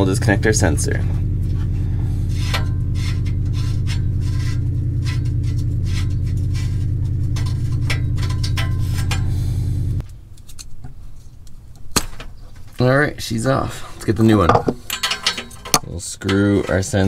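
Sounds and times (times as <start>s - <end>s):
steady low hum: 0.0s - 16.8s
metal and wire rubbing: 1.1s - 11.4s, 13.7s - 17.0s.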